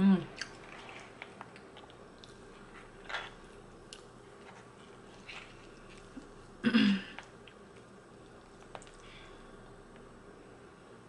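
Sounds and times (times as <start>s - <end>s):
person chewing pasta: 0.3s - 9.1s.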